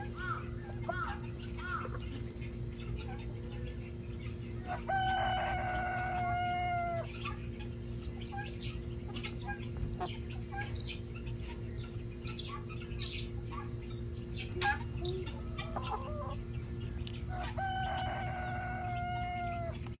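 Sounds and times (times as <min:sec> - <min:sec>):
chickens clucking: 0:00.0 - 0:20.0
steady low hum: 0:00.0 - 0:20.0
rooster crowing: 0:04.7 - 0:07.2, 0:17.3 - 0:19.8.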